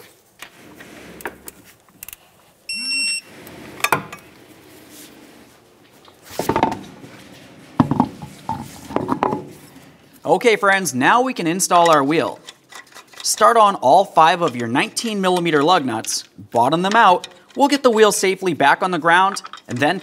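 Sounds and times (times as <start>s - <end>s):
electronic beep: 2.7s - 3.3s.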